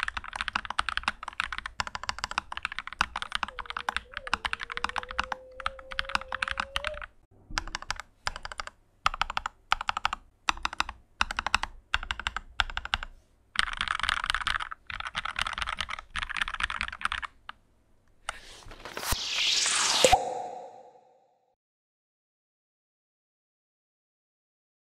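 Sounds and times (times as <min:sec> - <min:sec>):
mechanical keyboard typing: 0:00.0 - 0:17.6.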